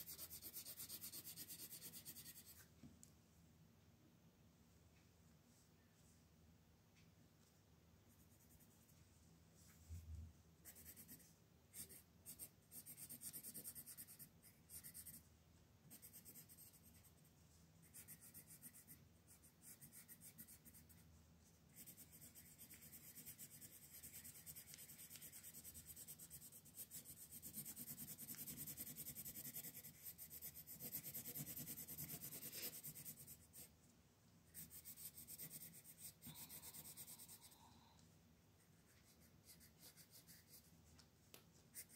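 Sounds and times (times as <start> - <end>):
pencil scratching on paper: 0.0 - 2.7, 10.6 - 15.2, 15.9 - 17.2, 17.8 - 21.1, 21.7 - 33.7, 34.5 - 37.6, 38.8 - 40.7.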